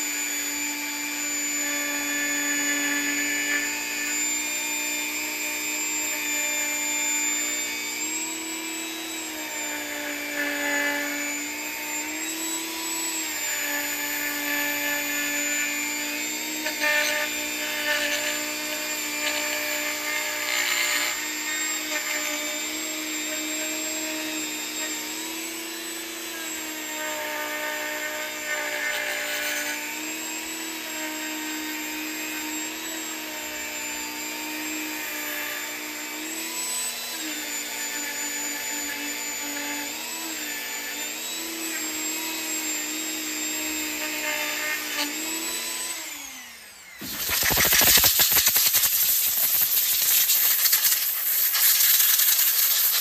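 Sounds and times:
rotary tool whining: 0.0s - 53.0s
bit scratching metal: 47.0s - 53.0s.

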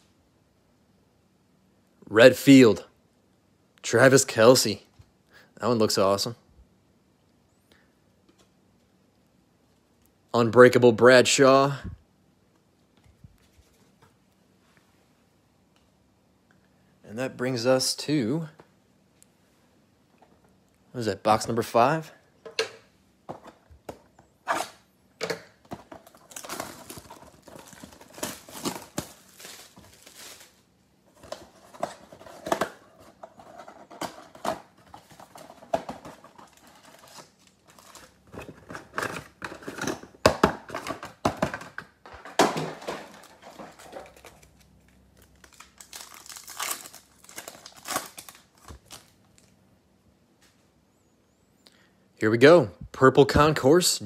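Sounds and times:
foil packs crinkling: 25.8s - 33.5s, 34.1s - 39.8s, 42.3s - 49.5s
cardboard tearing: 45.4s - 49.1s.

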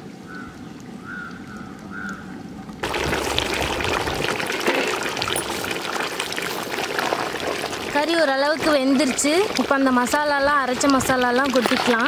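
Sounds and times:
curry bubbling in a pot: 2.8s - 12.0s.

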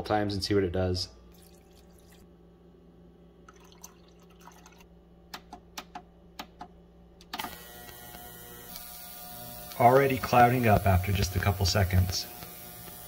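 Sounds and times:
ultrasonic cleaner humming: 7.4s - 13.0s.

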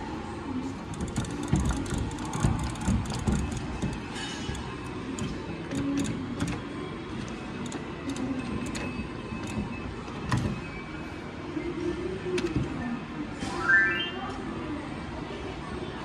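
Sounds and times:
steady mechanical hum: 0.0s - 16.0s
claw gantry motors running: 0.6s - 11.0s.

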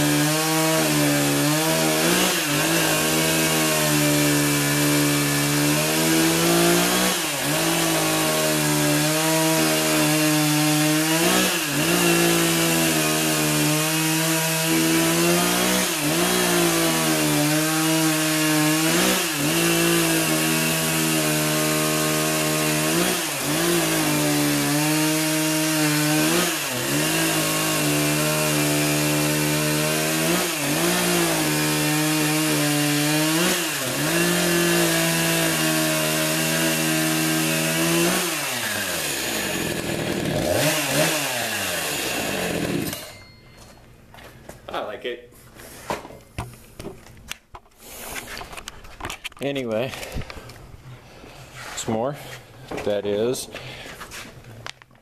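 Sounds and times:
chainsaw cutting through log: 0.0s - 43.4s.

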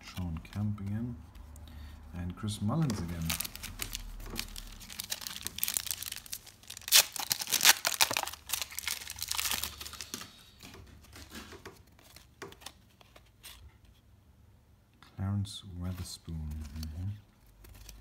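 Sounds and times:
cards being handled: 2.7s - 14.0s, 15.9s - 18.0s
foil wrapper tearing and crinkling: 3.1s - 10.4s.

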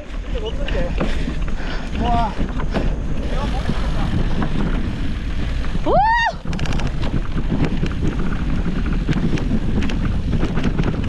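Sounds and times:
bike rattling over rough trail: 0.0s - 11.0s
wind buffeting microphone: 0.0s - 11.0s
high whoop: 5.8s - 6.5s.

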